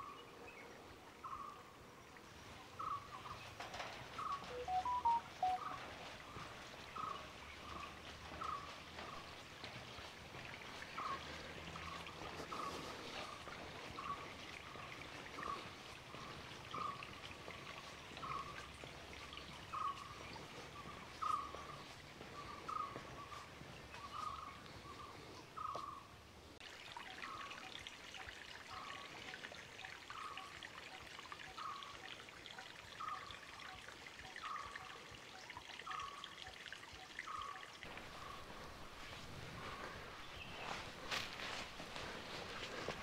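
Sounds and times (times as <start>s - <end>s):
bird call note: 4.4s - 5.8s.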